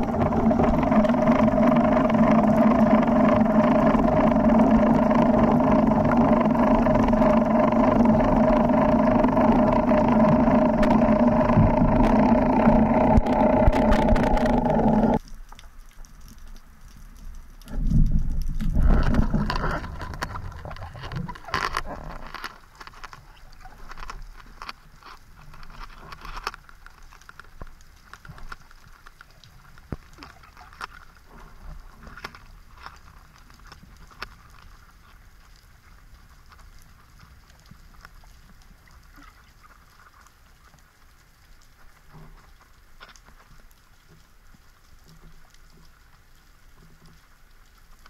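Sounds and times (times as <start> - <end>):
underwater rushing water: 0.0 - 24.8
faint clicks and crackling: 0.0 - 48.0.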